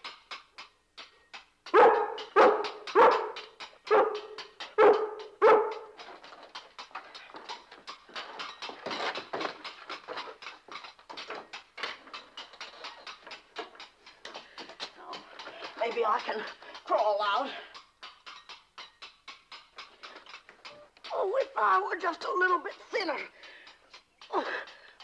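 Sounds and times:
rapid irregular clatter: 0:00.0 - 0:25.0
dog barking: 0:01.7 - 0:05.9.

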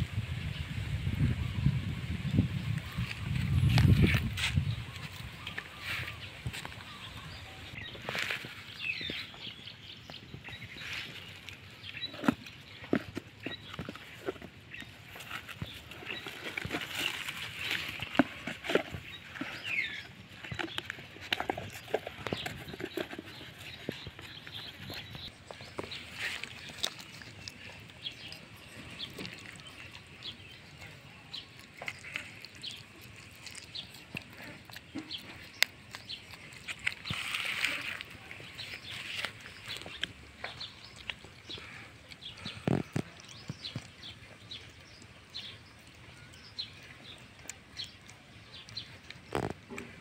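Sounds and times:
small birds chirping: 0:00.0 - 0:50.0
puppy chewing and smacking: 0:11.5 - 0:50.0.

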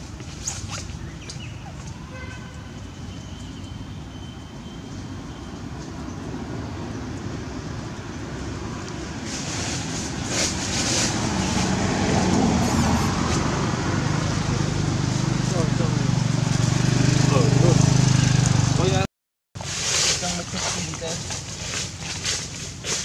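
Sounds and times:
low engine rumble: 0:06.9 - 0:19.0.

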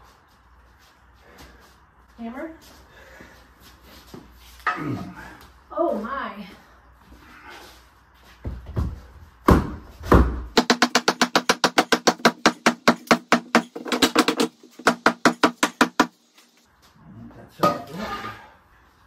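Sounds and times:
hammer striking wood: 0:09.5 - 0:16.2.

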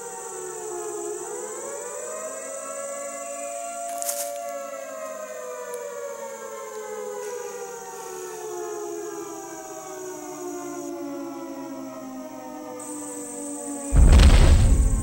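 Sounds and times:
air-raid siren wailing: 0:00.0 - 0:14.0
short sharp crack: 0:14.0 - 0:15.0.

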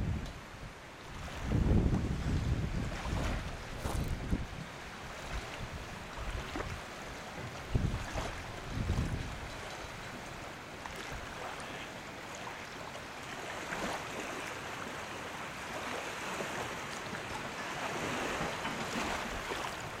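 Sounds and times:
wind on microphone: 0:00.0 - 0:10.2
water lapping against jetty: 0:01.0 - 0:20.0.

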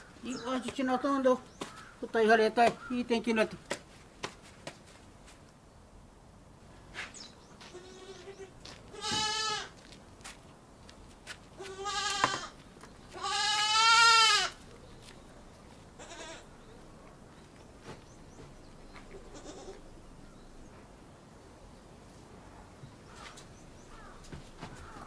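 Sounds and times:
young goat bleating: 0:07.6 - 0:09.8, 0:11.6 - 0:14.6, 0:16.0 - 0:16.5, 0:19.2 - 0:19.8.

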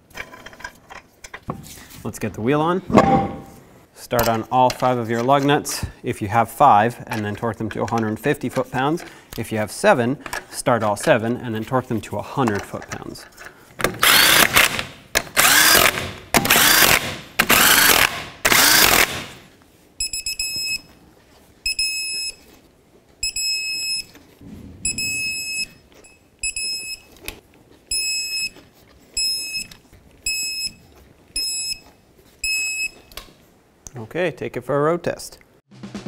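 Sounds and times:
impact wrench hammering: 0:13.8 - 0:19.4
short electronic beeps: 0:24.8 - 0:27.1.

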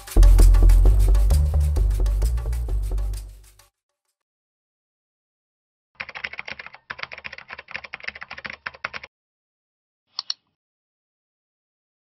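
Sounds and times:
mouse double click: 0:10.1 - 0:10.6.

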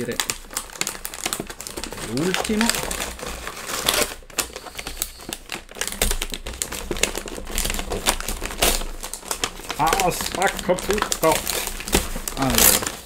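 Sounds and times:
wrapping paper tearing and crumpling: 0:00.0 - 0:13.0.

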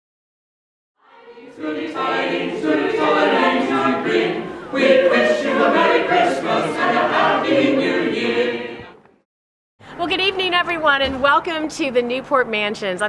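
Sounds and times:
choir singing a carol: 0:01.0 - 0:09.0.

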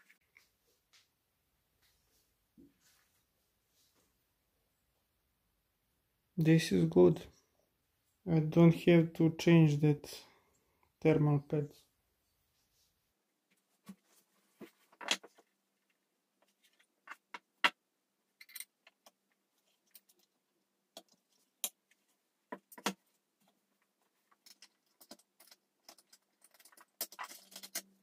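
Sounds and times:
clicks and knocks of handling hardware: 0:24.3 - 0:28.0.

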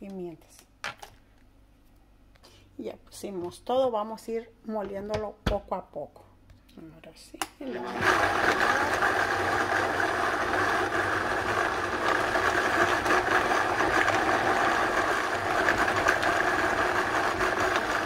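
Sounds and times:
blender motor grinding: 0:07.7 - 0:18.0.

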